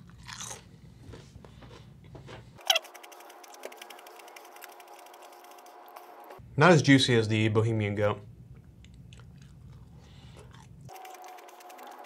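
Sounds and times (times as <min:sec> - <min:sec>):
faint chewing: 0:00.0 - 0:06.1, 0:08.5 - 0:12.0.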